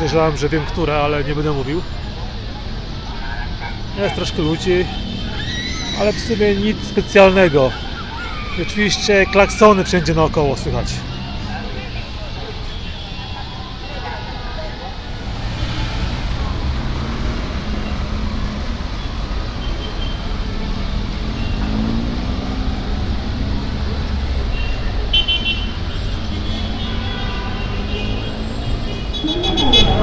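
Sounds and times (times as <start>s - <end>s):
traffic engine rumble: 0.0s - 30.0s
car horns honking: 24.5s - 30.0s.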